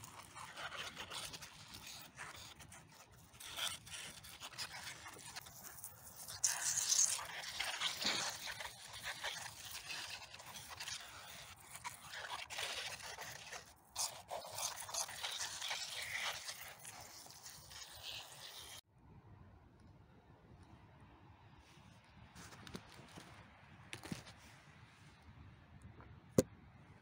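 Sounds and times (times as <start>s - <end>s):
crunching and scraping of debris: 0.0s - 18.8s.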